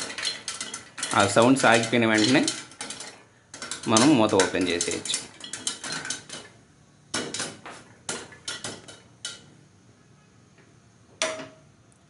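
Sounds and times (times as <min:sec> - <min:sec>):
popcorn popping in metal pot: 0:00.0 - 0:09.5.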